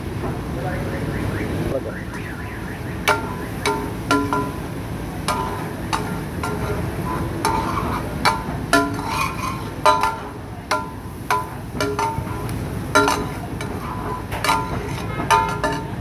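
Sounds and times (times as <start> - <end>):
metal spatula striking griddle: 3.0 - 16.0.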